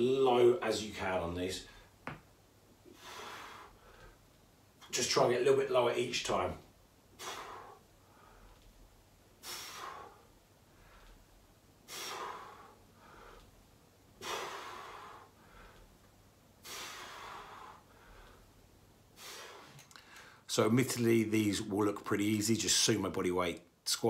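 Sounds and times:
man breathing hard: 2.8s - 4.2s, 7.1s - 8.7s, 9.4s - 13.6s, 14.2s - 16.0s, 16.6s - 18.6s, 19.2s - 20.5s.

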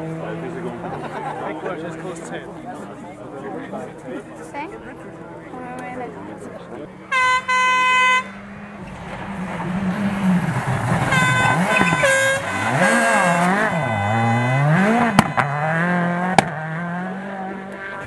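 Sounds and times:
car engine revving: 6.4s - 18.0s
air horn blasts: 7.1s - 8.6s, 11.0s - 16.4s
sharp bangs: 8.4s - 16.7s.

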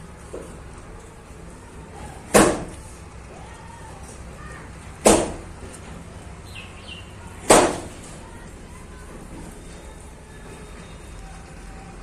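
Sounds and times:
loud sharp bangs: 2.2s - 2.8s, 5.0s - 5.6s, 7.4s - 8.0s.

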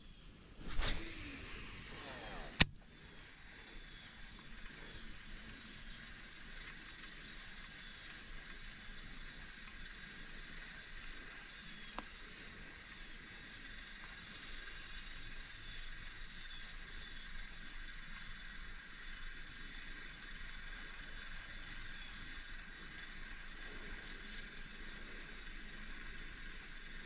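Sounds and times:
outdoor background hiss: 0.0s - 27.0s
fishing line whoosh: 0.6s - 2.8s
fishing reel click: 0.6s - 2.8s.

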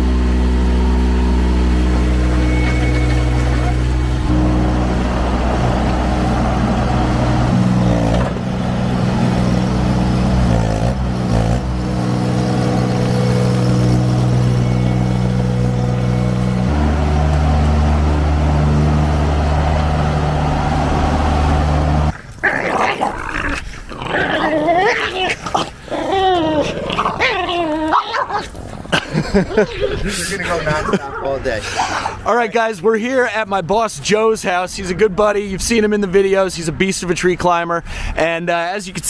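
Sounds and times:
skid steer engine running: 0.0s - 22.2s
dogs growling: 22.1s - 32.3s.

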